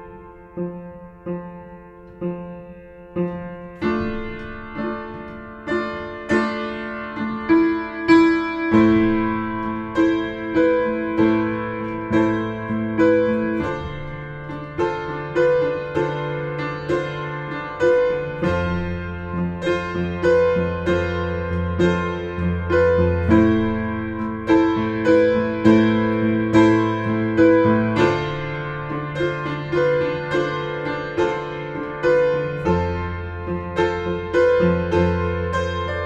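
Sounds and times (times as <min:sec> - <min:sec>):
piano music: 0:00.0 - 0:36.0.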